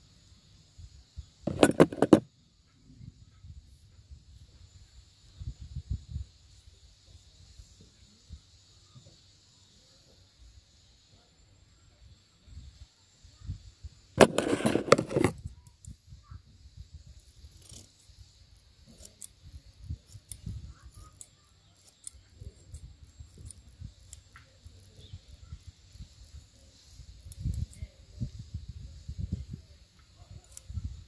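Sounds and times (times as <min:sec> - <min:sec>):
rustling and clicks: 0:01.5 - 0:02.2, 0:14.2 - 0:15.5.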